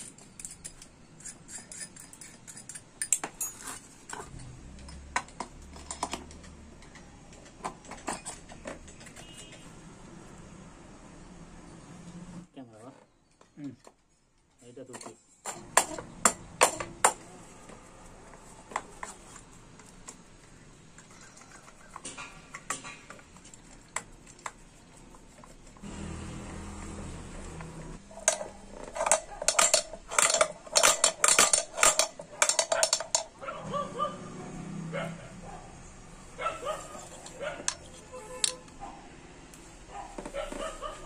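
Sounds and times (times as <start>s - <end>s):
metal tools clinking on engine casing: 0.0s - 9.7s, 28.0s - 33.4s.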